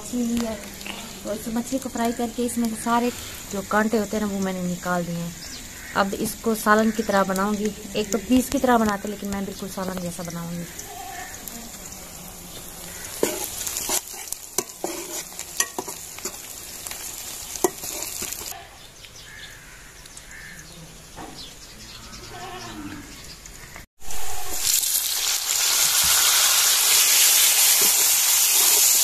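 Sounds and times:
onions sizzling in oil: 0.0s - 18.6s, 23.4s - 29.0s
loud sizzle of frying vegetables: 0.0s - 19.3s, 23.4s - 29.0s
ladle scraping a pan: 13.1s - 16.4s, 17.6s - 18.5s.

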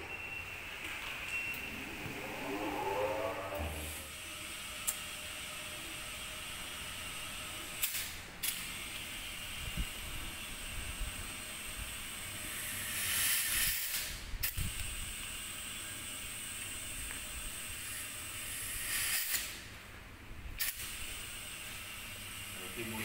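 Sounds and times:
compressed air hissing: 17.7s - 19.6s.

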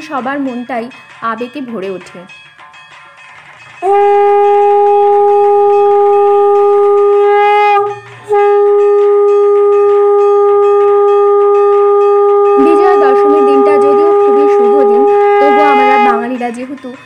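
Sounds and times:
conch shell blown: 3.8s - 16.4s.

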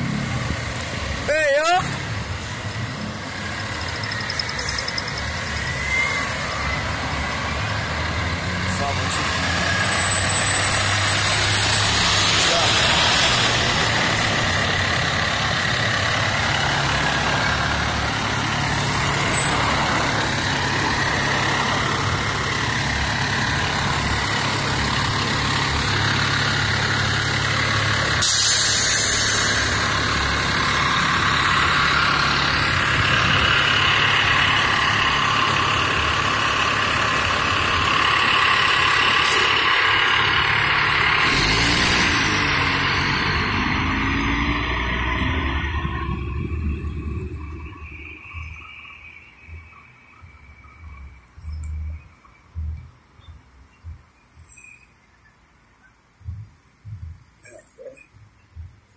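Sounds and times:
diesel truck engine running: 0.0s - 53.1s
short loud hiss: 28.2s - 29.7s.

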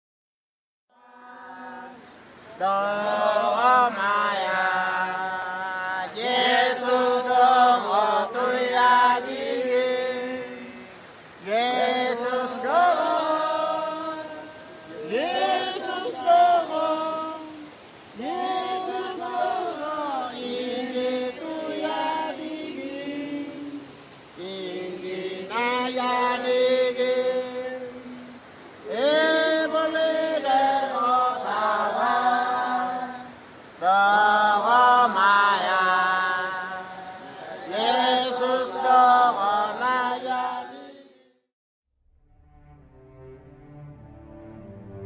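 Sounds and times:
voice chanting with wavering pitch: 0.9s - 41.2s.

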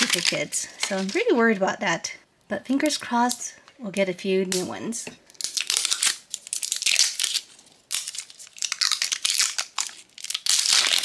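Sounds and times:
plastic wrapper crinkling: 0.0s - 1.6s, 5.3s - 11.0s.

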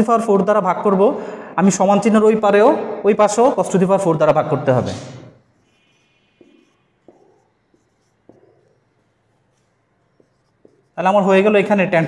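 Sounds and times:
marker pen scratching on whiteboard: 3.2s - 12.0s.

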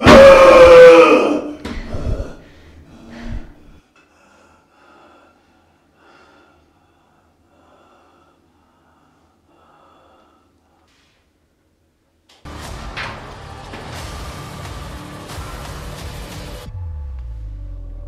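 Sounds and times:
faint breaths: 1.8s - 11.3s.

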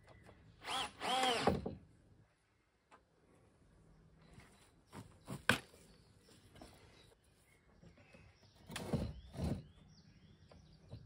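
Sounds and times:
birds chirping: 3.9s - 11.0s.

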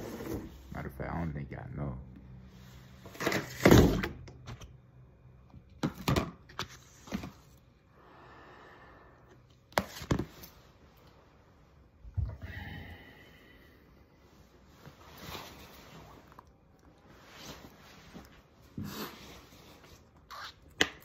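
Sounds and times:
soft rustle: 14.1s - 20.2s.

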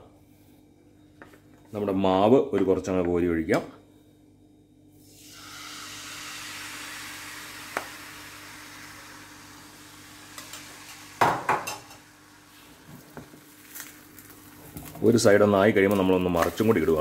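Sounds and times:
batter sizzling in frying pan: 5.0s - 17.0s
knocks on pan: 11.2s - 11.9s.

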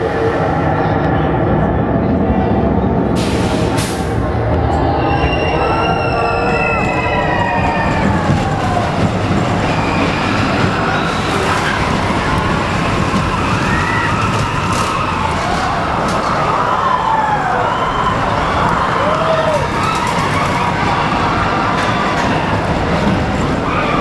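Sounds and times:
roller coaster train rumbling: 0.0s - 24.0s
riders screaming: 4.8s - 24.0s.

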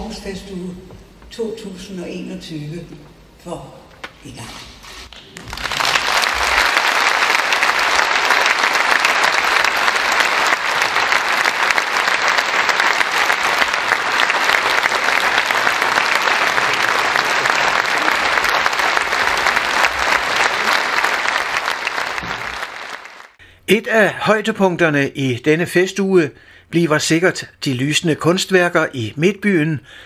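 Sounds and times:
audience applauding: 5.2s - 23.4s.

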